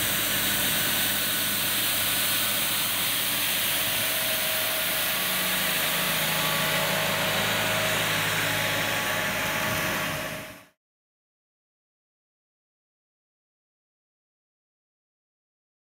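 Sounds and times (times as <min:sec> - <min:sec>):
rotary broom brushing asphalt: 0:00.0 - 0:10.6
tractor engine running: 0:00.0 - 0:10.8.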